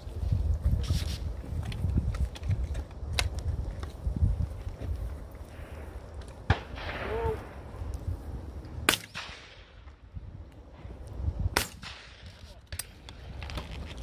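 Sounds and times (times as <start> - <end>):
wind rumble on microphone: 0.0 - 14.0
shotgun shots: 8.8 - 9.8.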